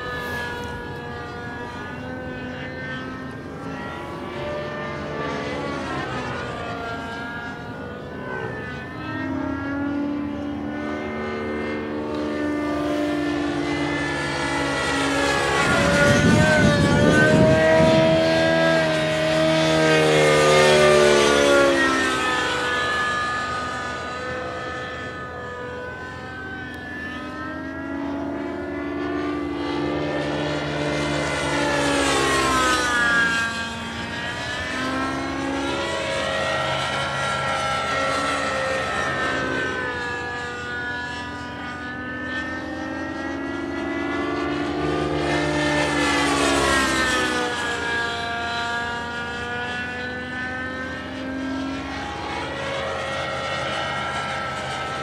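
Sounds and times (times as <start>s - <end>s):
model helicopter engine and rotor whine: 0.0s - 55.0s.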